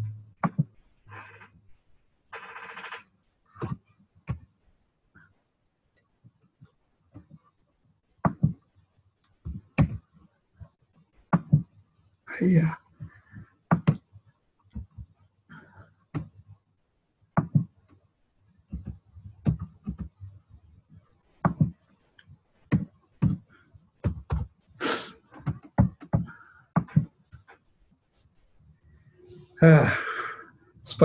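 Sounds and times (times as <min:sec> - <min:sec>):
faint vocal sounds: 0:29.2 - 0:31.0.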